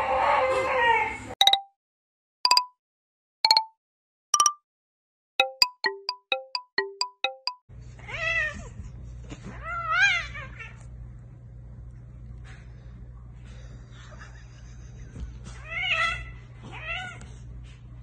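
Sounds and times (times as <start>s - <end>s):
bell-like tune: 1.4s - 1.7s, 2.5s - 2.7s, 3.5s - 3.7s, 4.4s - 4.6s, 5.4s - 7.6s.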